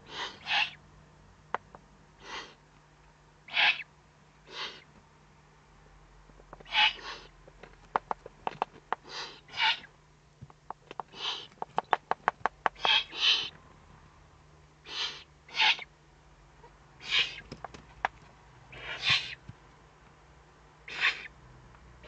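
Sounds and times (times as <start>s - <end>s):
owl chicks raspy hissing calls: 0.0s - 0.8s, 2.2s - 2.6s, 3.5s - 4.9s, 6.6s - 7.4s, 9.0s - 9.9s, 11.1s - 11.6s, 12.7s - 13.6s, 14.8s - 15.9s, 17.0s - 17.5s, 18.7s - 19.4s, 20.8s - 21.4s.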